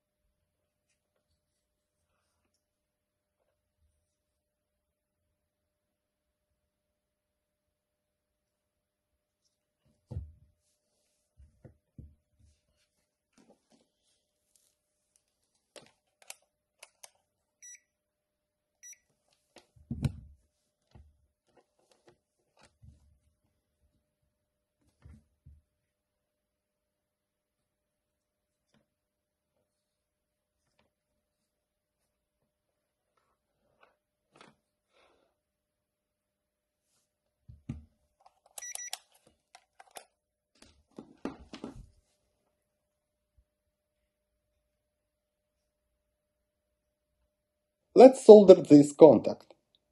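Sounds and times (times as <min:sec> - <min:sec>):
multimeter short beeps: 0:38.6 - 0:39.0.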